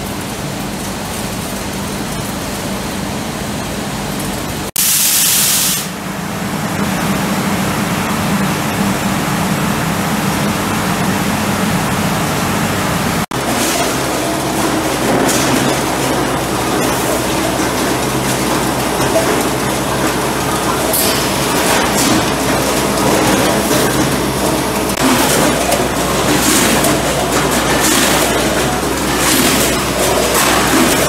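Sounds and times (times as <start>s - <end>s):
fans rushing air over hum: 0.0s - 31.0s
loud hiss: 4.8s - 6.0s.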